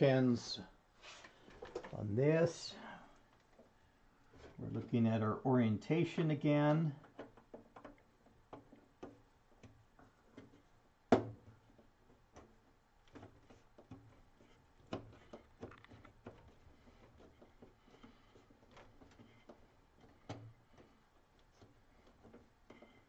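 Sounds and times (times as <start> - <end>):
small clicks and taps: 7.0 - 23.0.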